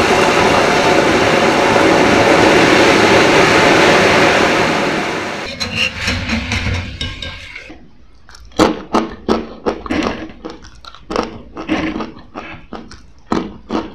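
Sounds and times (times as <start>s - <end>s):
crunchy chips being chewed: 8.1s - 13.9s.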